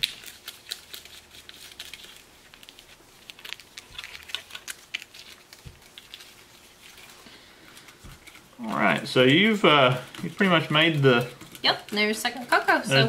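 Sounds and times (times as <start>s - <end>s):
plastic spoon scraping tray: 9.0s - 12.9s.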